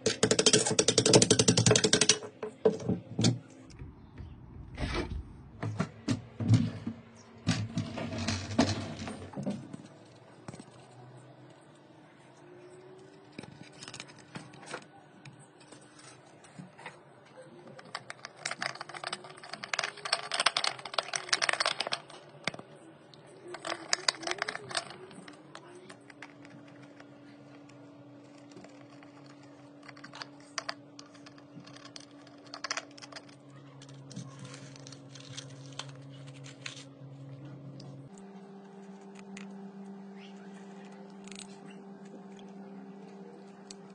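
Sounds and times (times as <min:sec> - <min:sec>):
small hard objects clicking and rattling: 0:00.0 - 0:02.3, 0:17.8 - 0:22.7, 0:23.3 - 0:36.8
faint steady hum: 0:00.0 - 0:43.9.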